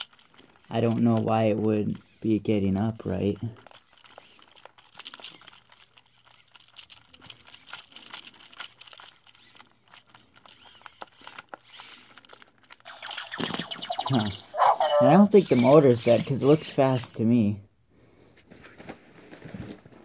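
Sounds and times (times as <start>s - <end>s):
plastic toy clicking: 0.0s - 17.2s
robot toy voice: 12.9s - 17.2s.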